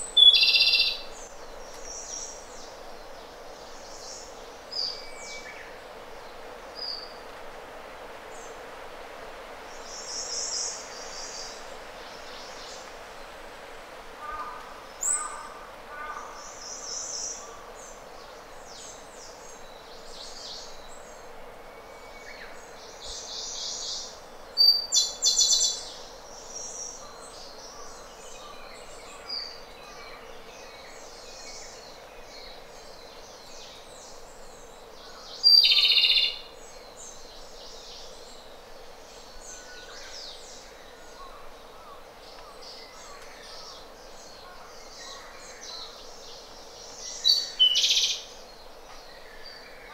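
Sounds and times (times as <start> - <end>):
robin singing: 0.0 - 2.7, 21.7 - 38.5, 39.1 - 49.9
steady hiss: 0.0 - 49.9.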